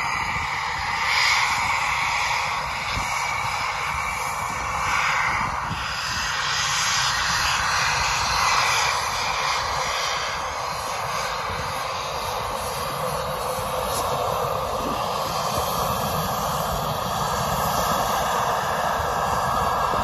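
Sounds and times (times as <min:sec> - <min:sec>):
jet engines taxiing: 0:00.0 - 0:20.0.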